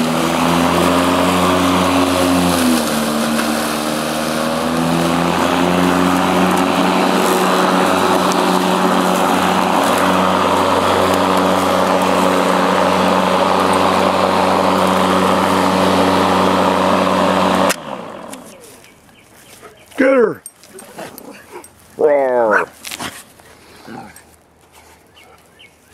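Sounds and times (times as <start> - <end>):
electric lawn mower humming: 0.0 - 19.0.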